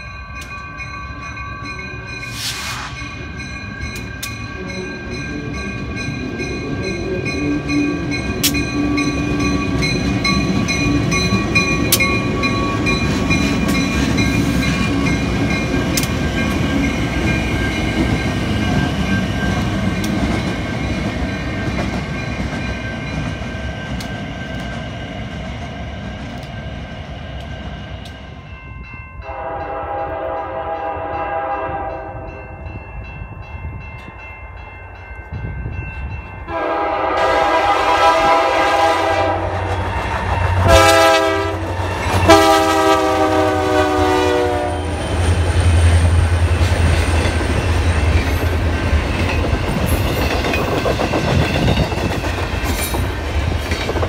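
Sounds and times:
locomotive engine and wheels rumble: 0.0s - 54.0s
lower-pitched train horn: 29.2s - 32.7s, 36.5s - 45.4s
train air horn chord: 29.3s - 32.4s, 36.5s - 39.7s, 40.6s - 44.9s.

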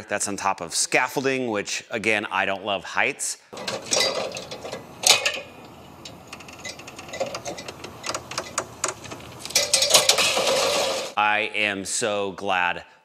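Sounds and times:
metal ladder clanking: 3.6s - 11.2s.

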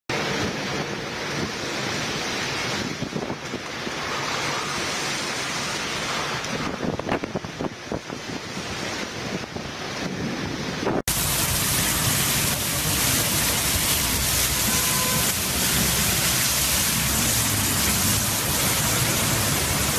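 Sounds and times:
wind gusts buffeting microphone: 0.1s - 14.4s
heavy rain pouring: 0.1s - 19.9s
strong wind blowing: 0.1s - 19.9s.

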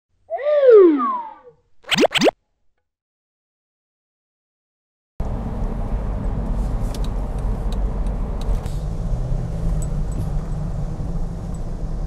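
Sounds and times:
car engine and road noise: 5.2s - 12.0s.

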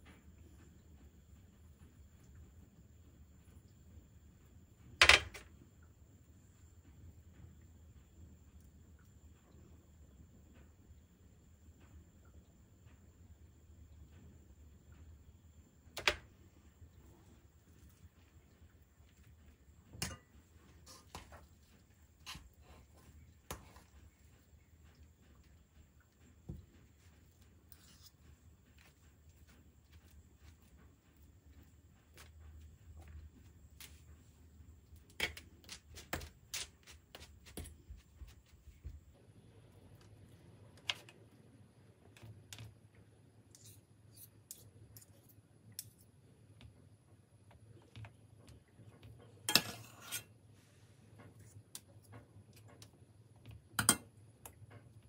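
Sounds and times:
cutlery clinking on saucepan: 20.0s - 20.3s, 49.5s - 50.2s, 53.8s - 54.1s.

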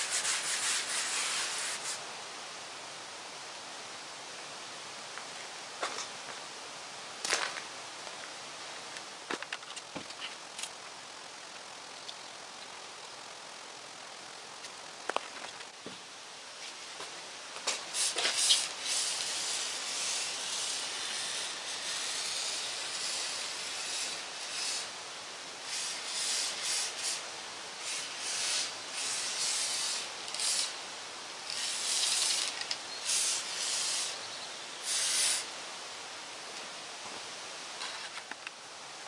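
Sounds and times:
aerosol spray can hissing: 0.0s - 2.0s, 17.7s - 24.9s, 25.6s - 30.8s, 31.5s - 34.2s, 34.8s - 35.5s.

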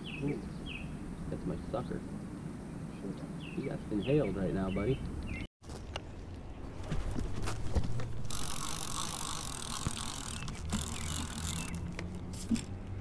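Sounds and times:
fishing reel clicker ratcheting: 8.3s - 12.2s.

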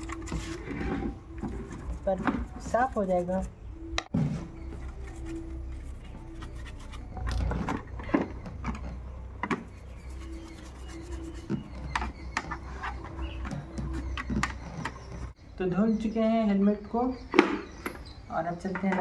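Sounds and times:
brush scrubbing helmet: 9.8s - 11.9s.

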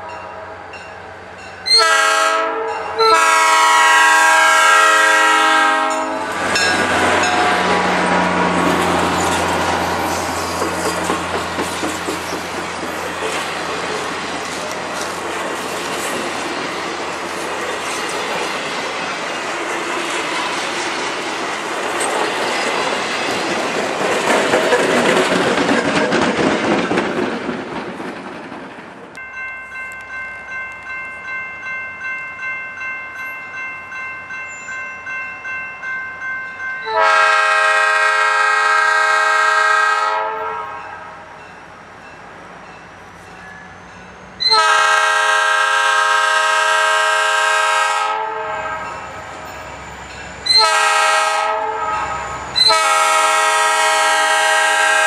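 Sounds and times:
crossing bell ringing: 0.0s - 11.3s, 11.9s - 20.6s, 29.2s - 38.0s, 40.6s - 45.2s, 48.6s - 55.0s
locomotive air horn blast: 1.7s - 6.5s, 36.8s - 41.1s, 44.4s - 48.9s, 50.5s - 55.0s
train wheels clickety-clack: 5.8s - 29.2s.

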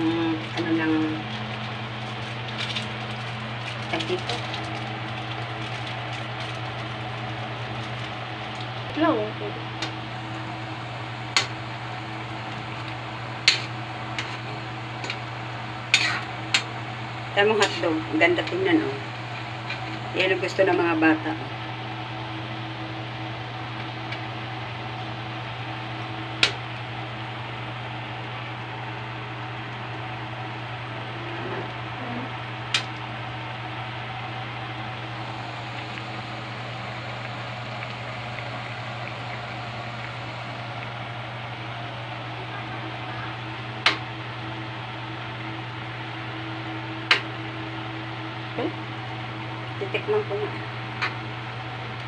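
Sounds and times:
soup simmering on stove: 32.4s - 49.7s.

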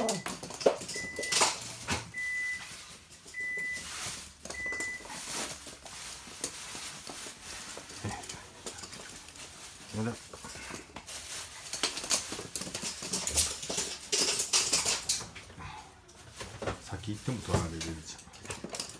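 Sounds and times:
dog claws clicking on hard floor: 0.0s - 2.1s, 10.3s - 15.4s, 17.8s - 18.9s.

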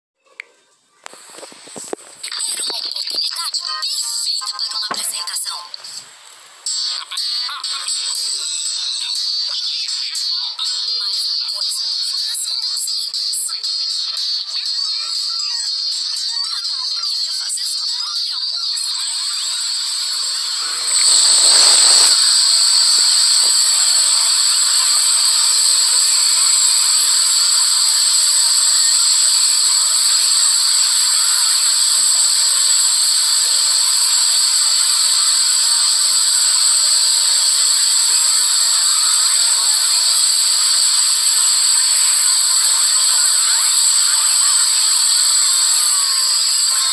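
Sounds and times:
loud steady hiss: 1.1s - 2.3s, 4.8s - 7.0s, 18.8s - 46.9s
high whistling tones: 18.8s - 46.9s.

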